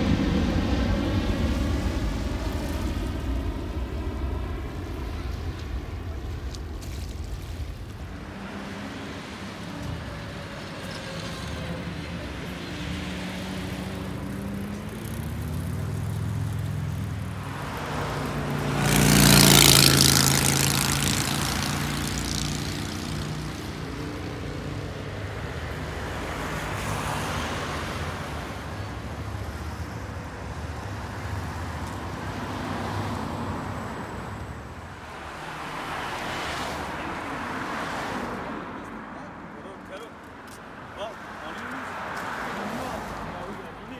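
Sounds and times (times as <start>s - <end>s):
low engine hum: 0.0s - 25.6s
cars passing by: 0.0s - 43.9s.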